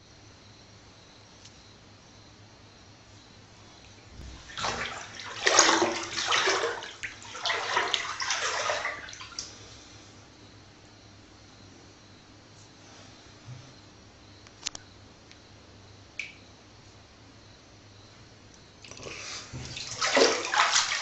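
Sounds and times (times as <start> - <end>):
water splashing into bathtub: 4.2 - 9.5, 18.8 - 21.0.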